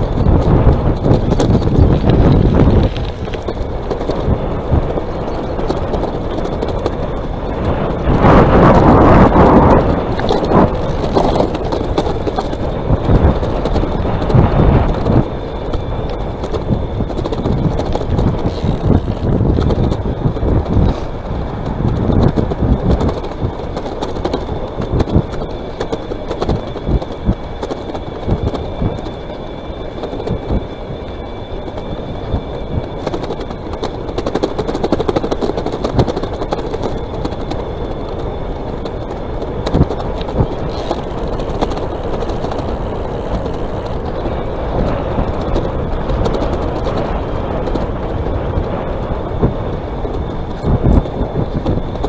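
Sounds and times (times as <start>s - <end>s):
tyre rumble: 0.0s - 52.0s
wind buffeting microphone: 0.0s - 52.0s
faint high whine: 22.0s - 52.0s.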